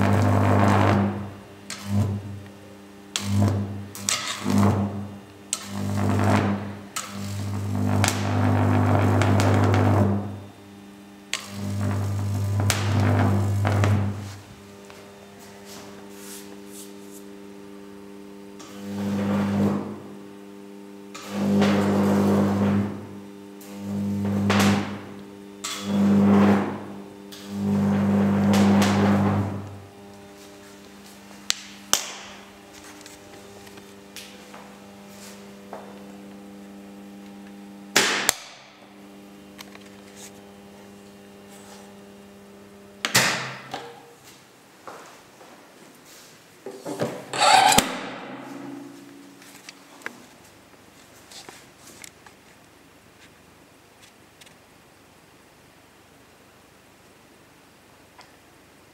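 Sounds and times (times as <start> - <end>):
loud electrical buzz: 0.0 - 44.4, 47.2 - 50.5.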